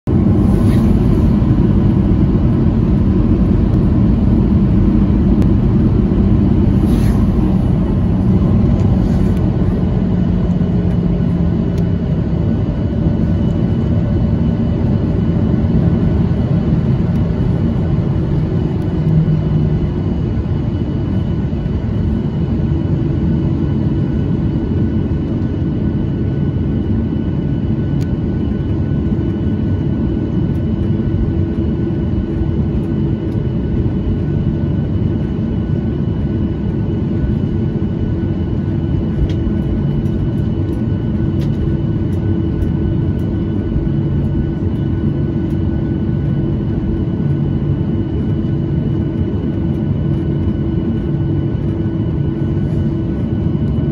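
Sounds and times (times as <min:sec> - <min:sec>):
jet engine cabin rumble: 0:00.0 - 0:53.9.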